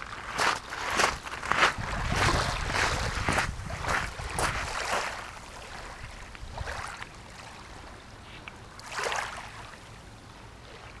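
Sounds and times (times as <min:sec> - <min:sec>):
wind rumbling on microphone: 0:00.0 - 0:08.5
rush of water: 0:00.0 - 0:11.0
water lapping: 0:00.0 - 0:11.0.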